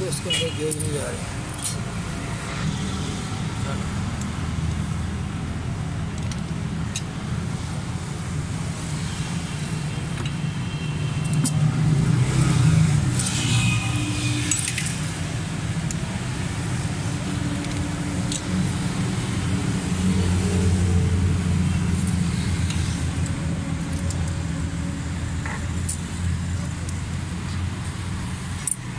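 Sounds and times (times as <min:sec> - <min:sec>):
metal tools clicking: 0:28.6 - 0:28.9.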